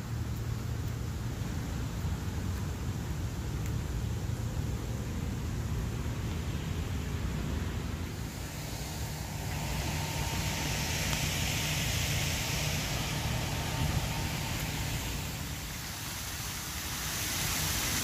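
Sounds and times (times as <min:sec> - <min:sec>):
waterfall rushing hiss: 0:01.1 - 0:18.0
low rumble: 0:05.2 - 0:16.2.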